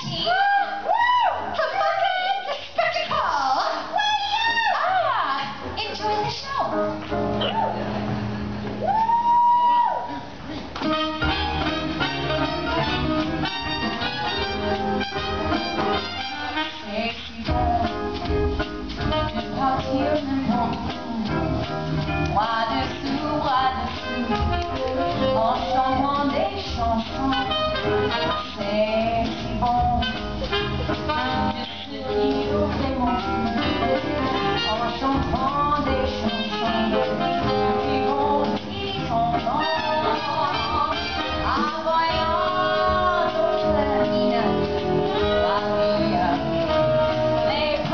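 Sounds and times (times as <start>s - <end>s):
band playing jazzy swing: 0.0s - 47.9s
woman singing into a microphone: 16.6s - 18.1s, 19.1s - 21.7s, 22.3s - 30.2s, 31.0s - 47.9s.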